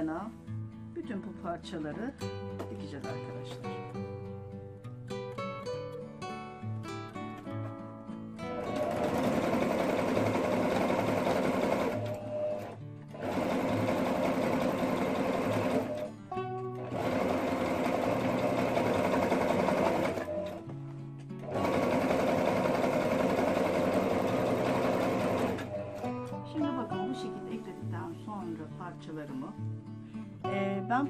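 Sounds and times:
acoustic guitar music: 0.0s - 31.0s
sewing machine stitching: 8.6s - 16.1s, 16.8s - 20.6s, 21.4s - 26.1s.

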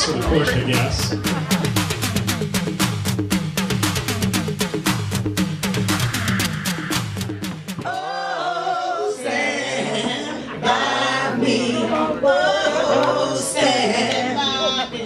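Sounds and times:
electronic music with beat: 0.0s - 7.9s
voices singing unaccompanied: 7.8s - 15.0s.

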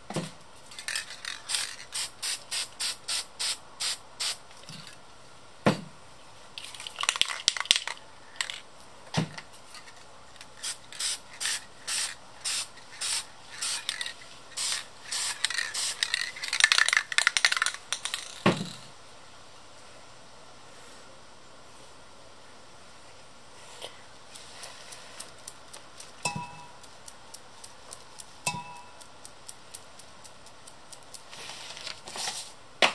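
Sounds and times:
spray paint can hissing: 0.9s - 4.4s, 10.6s - 18.4s.

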